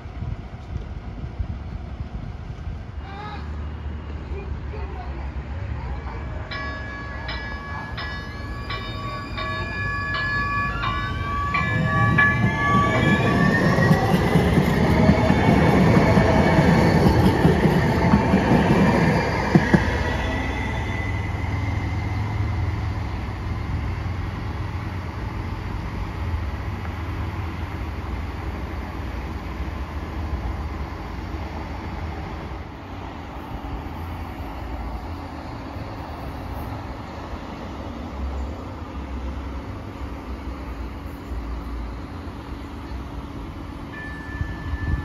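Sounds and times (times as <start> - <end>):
wheels rumbling on rail: 0.0 - 45.0
train traction motors whining: 5.9 - 26.8.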